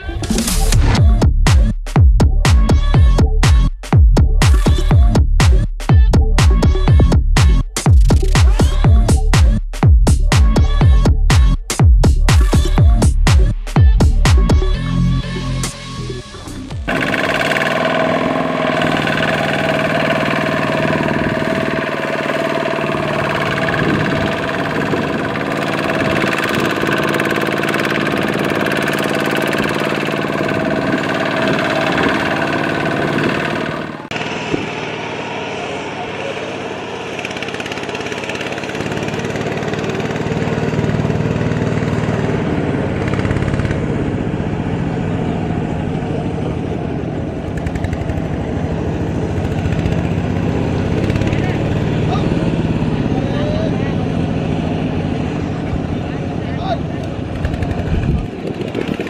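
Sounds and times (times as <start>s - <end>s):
diesel tractor engine running: 0.0s - 59.0s.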